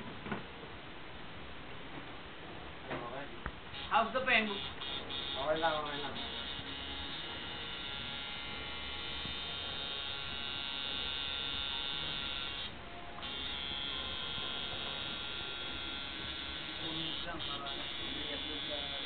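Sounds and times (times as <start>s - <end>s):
tattoo machine buzzing: 3.7s - 19.0s.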